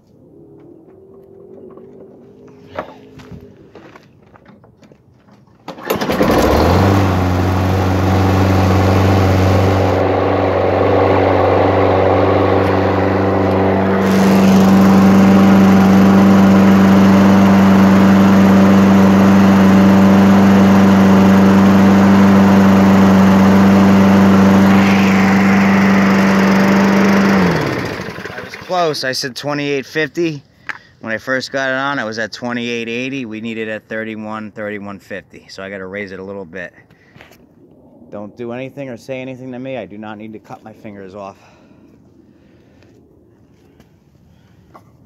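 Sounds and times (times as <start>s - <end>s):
lawn mower engine running: 5.7s - 29.0s.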